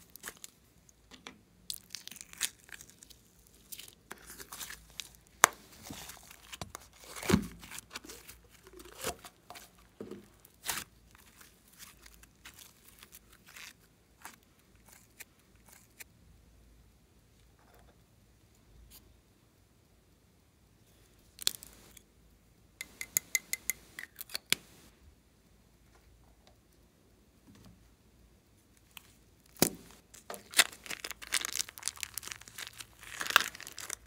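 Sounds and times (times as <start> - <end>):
slime squelching and popping: 29.5 - 34.0.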